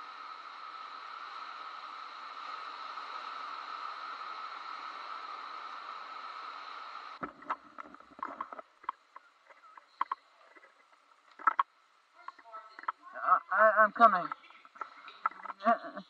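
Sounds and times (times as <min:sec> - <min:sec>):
wind and surf rushing: 0:00.0 - 0:09.4.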